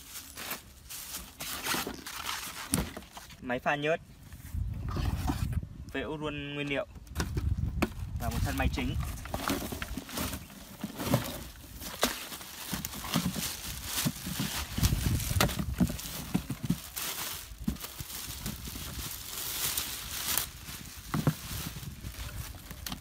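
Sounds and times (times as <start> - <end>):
cardboard flaps rustling: 0.0 - 3.4, 7.2 - 23.0
plastic wrap crinkling: 9.3 - 23.0.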